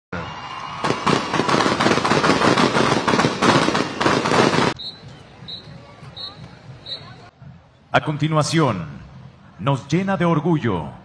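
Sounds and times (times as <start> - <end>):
firecrackers popping: 0.8 - 5.5.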